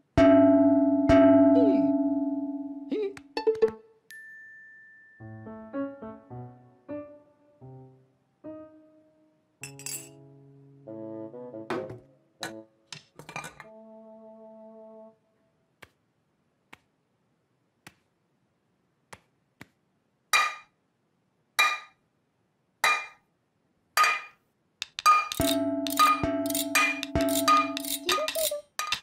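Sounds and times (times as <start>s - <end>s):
metal pans clanging: 11.7s - 13.6s, 22.8s - 23.2s, 24.0s - 29.0s
brass chord: 13.6s - 15.2s.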